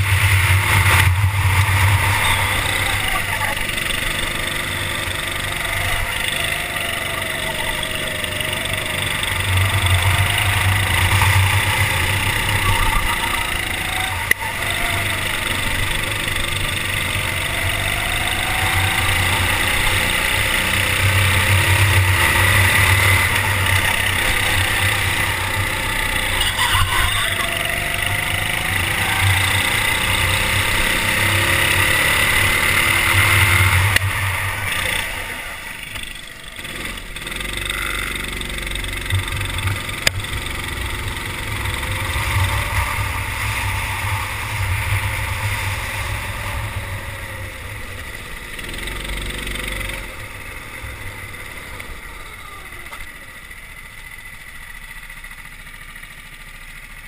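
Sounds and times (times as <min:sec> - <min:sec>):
kart engine running under load: 0:00.0 - 0:57.0.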